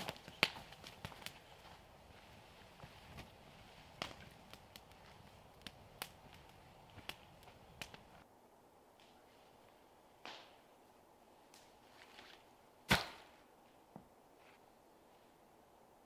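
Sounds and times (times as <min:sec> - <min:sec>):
twigs snapping: 0:00.0 - 0:01.4.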